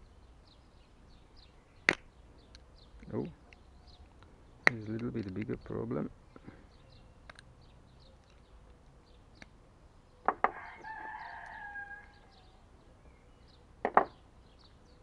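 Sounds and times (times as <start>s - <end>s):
rooster crowing: 10.5s - 12.6s.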